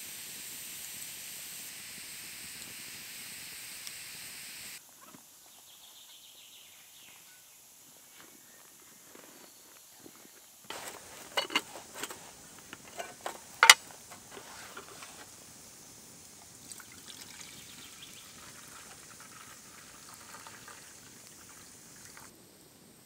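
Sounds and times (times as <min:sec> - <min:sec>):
liquid trickling as poured: 0:16.4 - 0:22.3.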